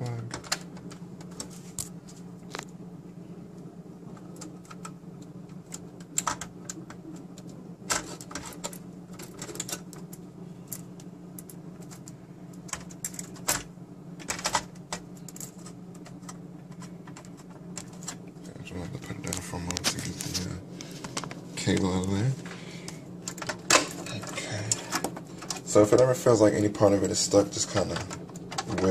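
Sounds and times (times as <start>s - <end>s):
low hum: 0.0s - 28.9s
wiring rattling: 27.1s - 28.9s.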